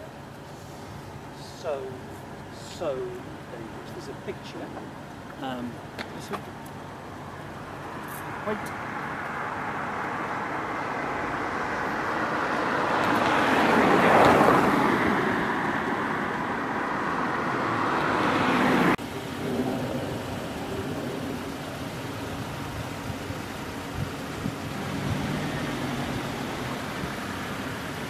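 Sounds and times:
traffic hum: 0.0 - 28.0
car passing close by: 8.4 - 21.5, 24.4 - 28.0.

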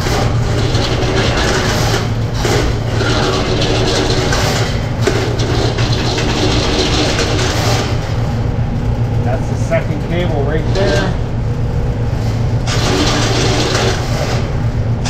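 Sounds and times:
drain snake cable rattling: 0.0 - 8.2
low motor hum: 0.0 - 15.0.

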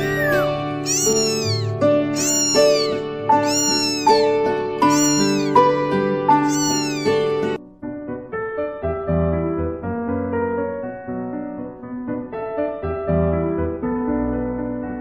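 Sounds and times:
cat meowing: 0.0 - 5.7, 6.3 - 7.6.

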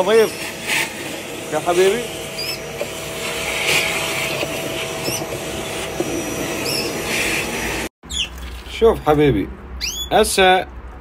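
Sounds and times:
vacuum cleaner running: 0.0 - 7.9
canary chirping: 2.4 - 2.7, 6.6 - 7.0, 8.0 - 8.4, 9.8 - 10.2.

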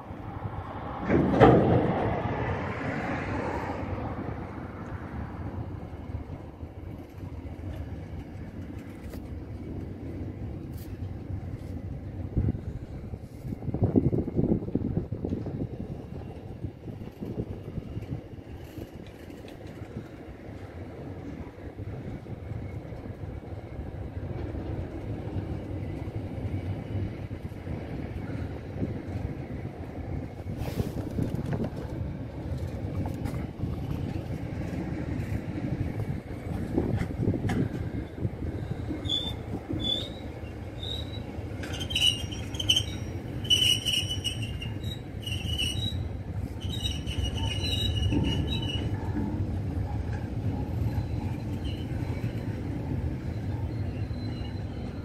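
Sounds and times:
train wheels rumbling on rail: 0.0 - 55.0
high-pitched wheel squeals: 38.0 - 49.4, 50.8 - 52.6, 53.2 - 55.0.

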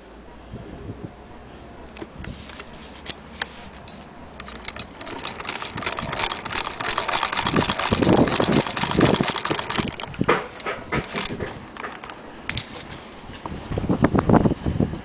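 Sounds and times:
sewing machine clattering: 3.8 - 12.8.

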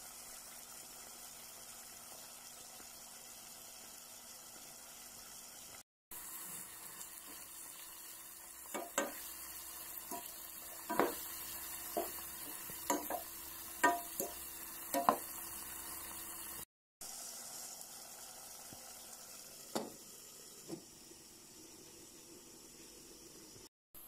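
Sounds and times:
food sizzling in a pan: 0.0 - 24.0
spatula scraping and knocking pan: 8.6 - 9.3, 10.0 - 15.4.

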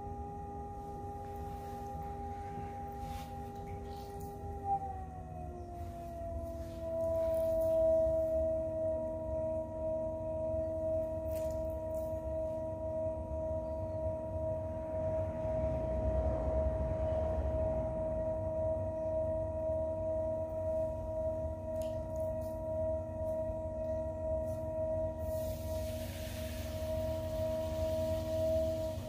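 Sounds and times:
pottery wheel motor whining: 0.0 - 10.0, 24.8 - 29.0
low rumble: 12.4 - 29.0.

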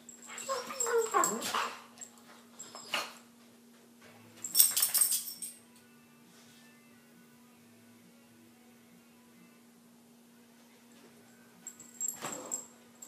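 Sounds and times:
dogs whining and yipping: 0.2 - 2.0, 2.6 - 3.2.

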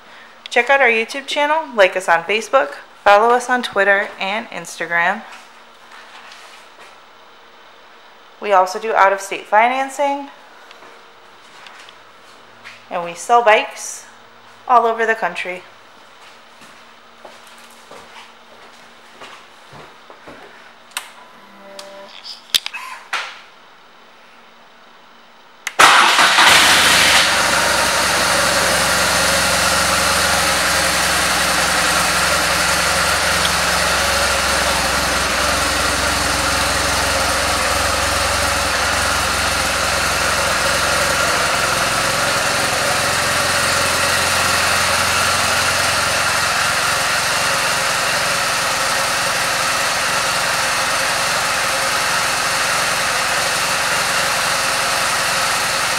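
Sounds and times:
motorcycle engine idling: 26.0 - 55.9.

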